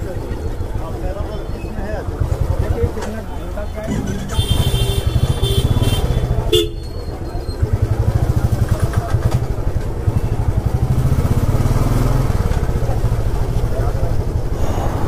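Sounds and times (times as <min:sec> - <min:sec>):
motorcycle engine chugging: 0:01.8 - 0:14.5
high-pitched horn honks: 0:03.9 - 0:06.9.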